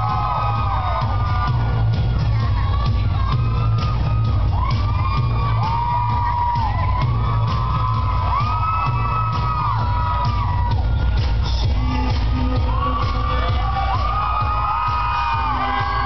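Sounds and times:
crowd shouting and whooping: 0.0s - 16.0s
loud rock music with heavy bass: 0.0s - 16.0s.

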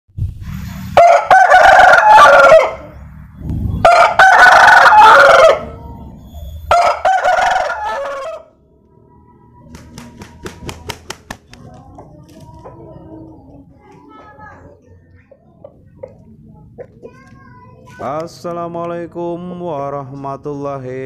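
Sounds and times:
rooster crowing: 1.0s - 3.0s, 3.8s - 6.0s, 6.7s - 8.6s.

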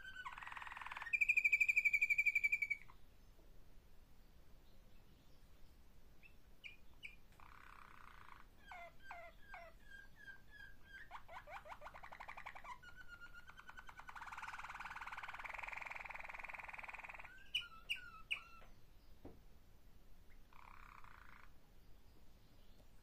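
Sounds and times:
canary singing: 0.0s - 3.0s, 6.2s - 18.8s, 20.3s - 21.5s.

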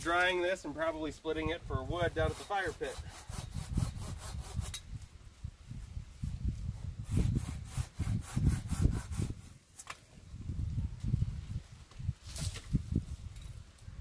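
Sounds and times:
hand saw cutting branch: 1.9s - 4.9s, 7.0s - 10.0s.

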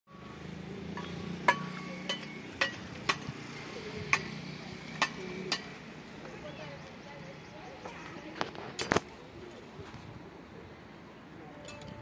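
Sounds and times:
steel trowel striking bricks: 0.9s - 3.4s, 5.0s - 5.8s.

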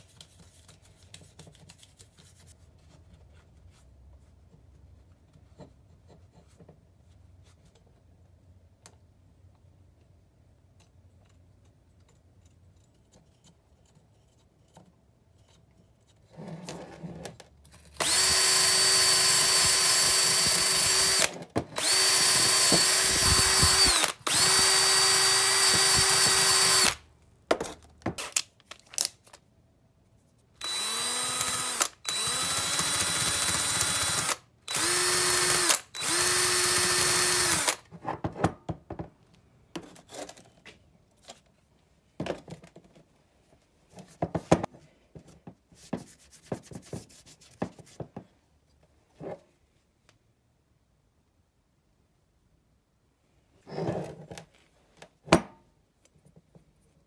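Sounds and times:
power drill running: 18.0s - 27.0s, 30.6s - 37.8s.

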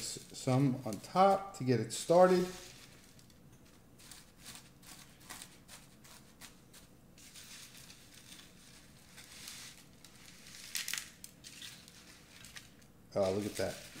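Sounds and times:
crushed potato chips crackling: 4.0s - 14.0s.

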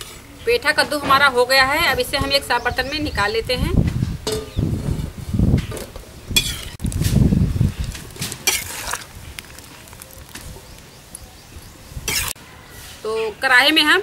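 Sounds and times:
steel ladle scraping and clinking: 8.2s - 10.0s, 12.1s - 12.4s.

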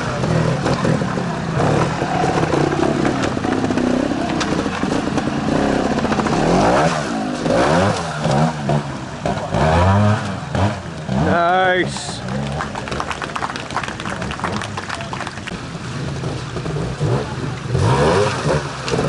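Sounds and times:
motorcycle engine revving: 0.0s - 13.2s, 15.4s - 19.0s.

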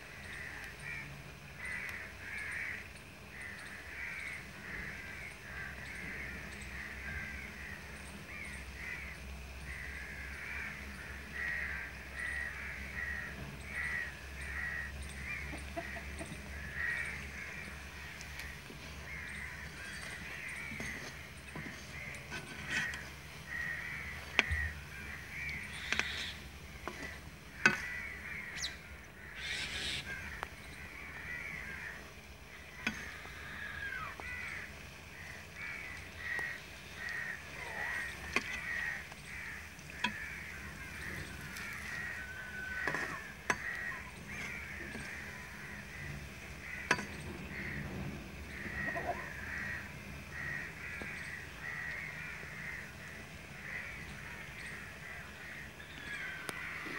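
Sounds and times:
birds calling: 0.0s - 56.9s
food deep-frying in hot oil: 29.8s - 55.0s.

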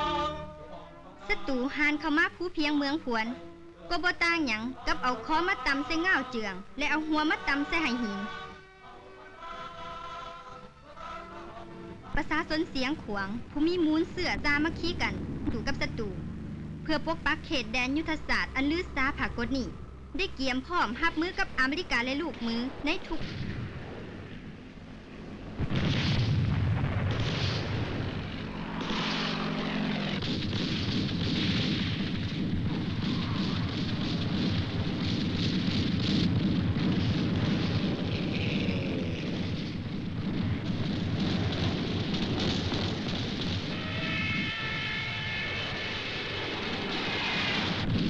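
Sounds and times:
anti-aircraft gunfire: 20.8s - 24.6s, 25.5s - 48.0s
explosions: 22.6s - 48.0s
jet aircraft flying over: 27.7s - 30.6s, 43.7s - 48.0s.

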